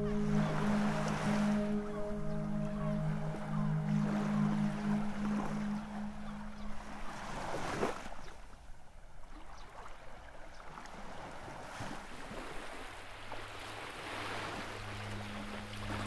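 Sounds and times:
low steady hum: 0.0s - 8.0s, 13.0s - 16.0s
sea waves lapping: 0.0s - 16.0s.

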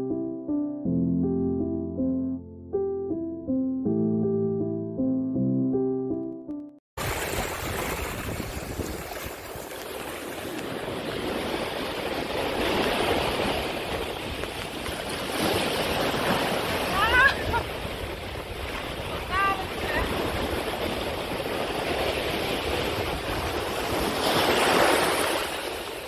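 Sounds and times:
waves foaming in shallows: 7.0s - 26.0s.

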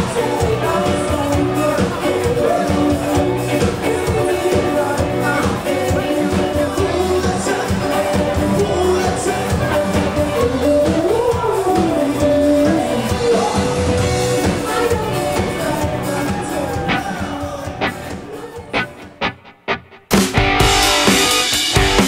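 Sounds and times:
live band music: 0.0s - 22.0s
woman singing: 14.4s - 18.9s.

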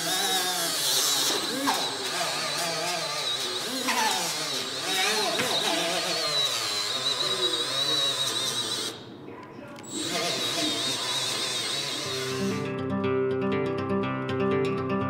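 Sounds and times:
die grinder sanding metal: 0.0s - 9.0s, 9.9s - 12.7s.

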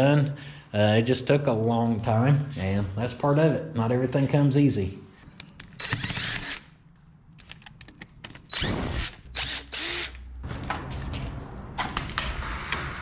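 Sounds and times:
cordless driver spinning screws: 5.8s - 6.6s, 8.3s - 10.2s.

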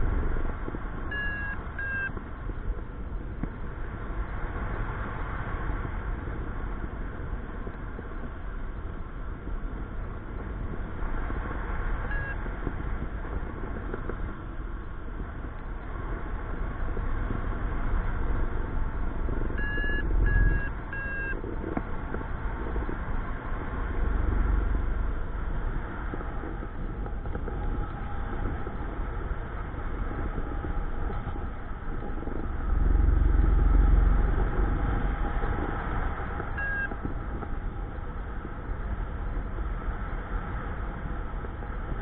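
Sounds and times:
wind rushing over microphone: 0.0s - 42.0s
variometer short high beeps: 1.1s - 2.2s, 12.1s - 12.4s, 19.6s - 21.4s, 36.6s - 37.0s.

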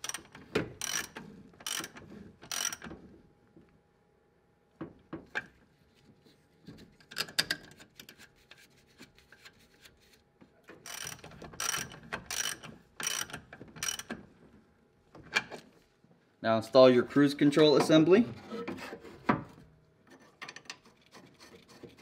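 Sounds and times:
ratchet wrench clicking: 0.0s - 2.8s, 10.9s - 14.1s.

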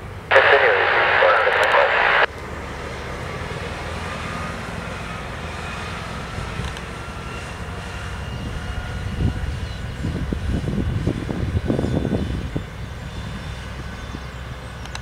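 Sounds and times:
faint high whine: 0.3s - 2.3s
truck diesel engine driving past: 2.5s - 9.8s
wind gusting on microphone: 8.2s - 14.3s.

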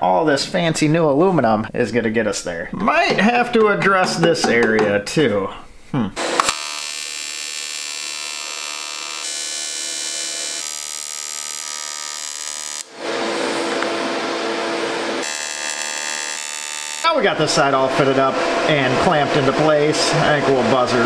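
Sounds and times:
electric arc welding buzz: 6.2s - 17.2s.

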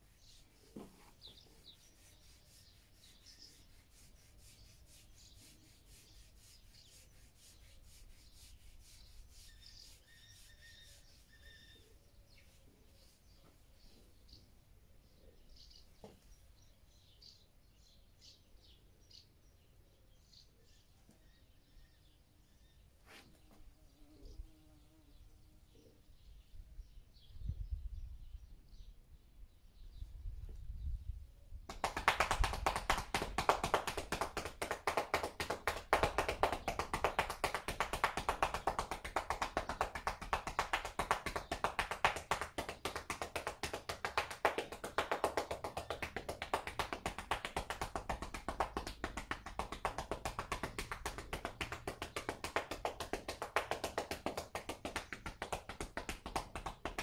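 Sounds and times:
hands patting a horse's back: 0.6s - 1.8s, 31.7s - 57.0s.

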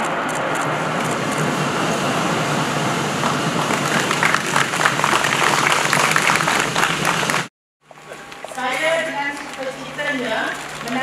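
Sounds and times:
crowd applauding: 3.2s - 11.0s
sharp nearby claps: 3.7s - 7.5s.

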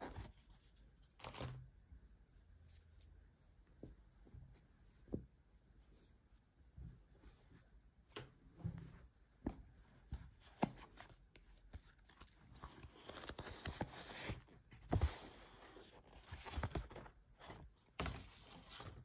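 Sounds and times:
paper and card rustling: 10.4s - 19.0s.

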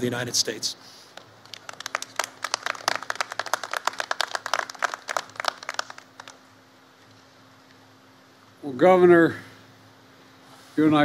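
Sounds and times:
scattered applause: 1.2s - 6.5s.

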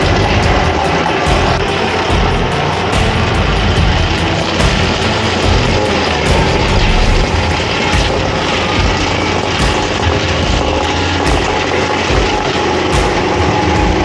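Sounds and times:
stone crusher grinding rocks: 0.0s - 14.0s.

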